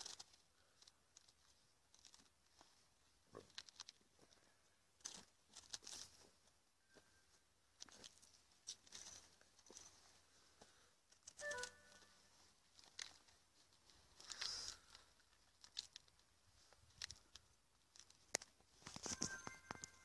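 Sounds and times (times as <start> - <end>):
fruit rind crackling and tearing: 0.0 - 2.4, 3.3 - 4.0, 12.7 - 19.0.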